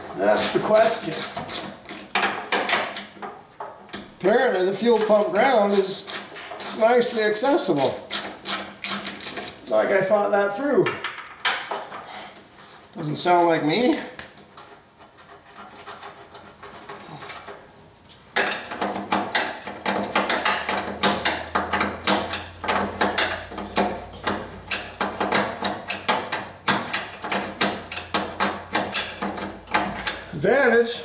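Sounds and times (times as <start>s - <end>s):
ratchet wrench clicking: 24.7s - 26.3s.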